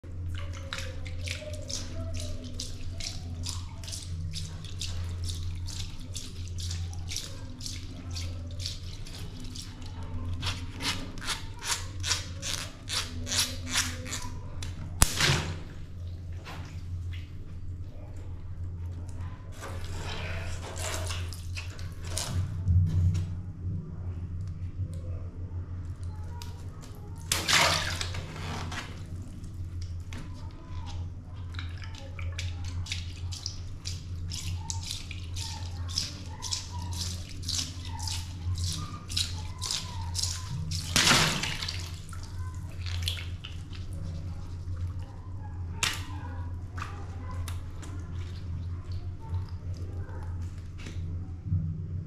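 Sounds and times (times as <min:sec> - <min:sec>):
steady low hum: 0:00.0 - 0:52.0
water splashing into box: 0:27.3 - 0:29.0, 0:31.6 - 0:44.0.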